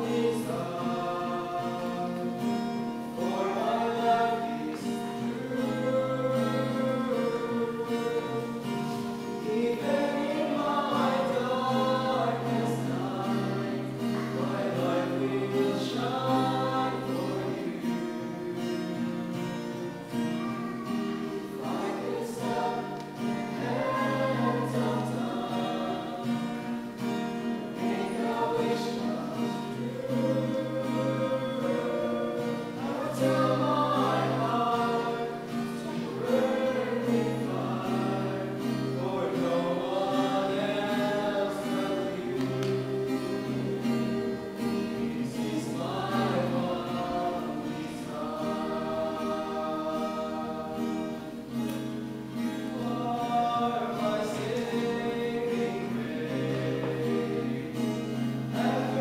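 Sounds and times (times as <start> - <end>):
group singing worship song: 0.0 - 59.0
strummed acoustic guitar: 0.0 - 59.0.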